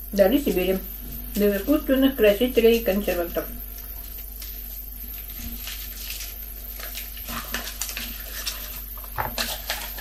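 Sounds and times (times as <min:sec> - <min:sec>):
candy wrapper crinkling: 0:04.1 - 0:10.0.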